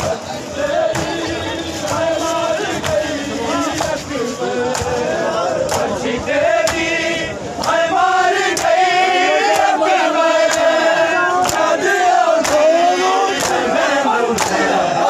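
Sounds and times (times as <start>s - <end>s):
crowd of men chanting: 0.0s - 15.0s
hands slapping chests: 11.4s - 11.7s, 12.4s - 12.7s, 14.4s - 14.6s.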